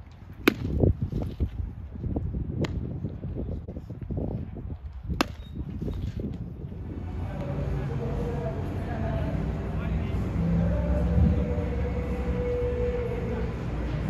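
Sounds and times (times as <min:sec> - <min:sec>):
baseballs cracking: 0:00.0 - 0:01.5, 0:02.6 - 0:02.9, 0:04.9 - 0:06.5
low rumble: 0:06.7 - 0:14.0.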